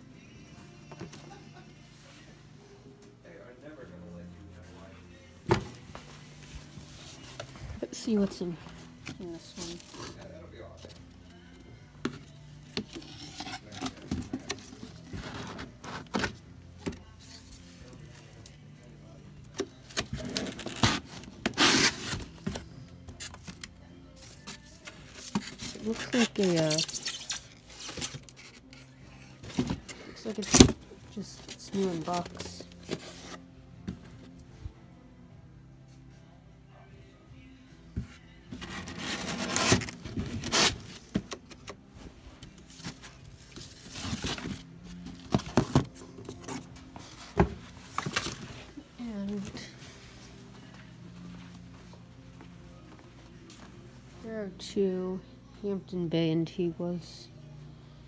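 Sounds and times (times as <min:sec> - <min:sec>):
cardboard scraping and rustling: 0:38.6 - 0:40.9.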